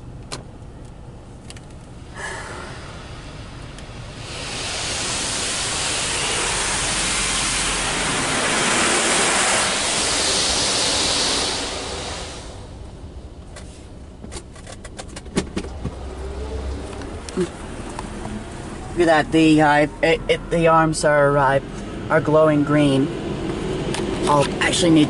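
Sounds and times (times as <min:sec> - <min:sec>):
water spraying on car glass: 0:04.2 - 0:12.4.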